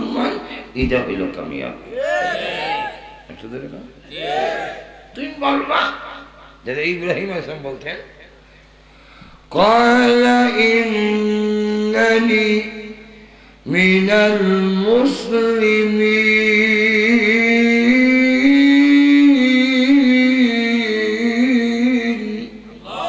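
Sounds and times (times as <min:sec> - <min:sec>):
man singing a chant: 0:09.5 - 0:22.9.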